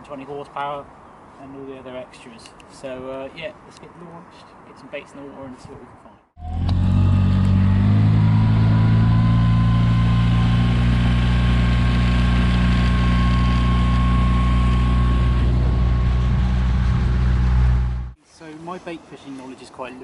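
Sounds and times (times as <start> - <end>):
outboard motor droning: 6.4 - 18.2.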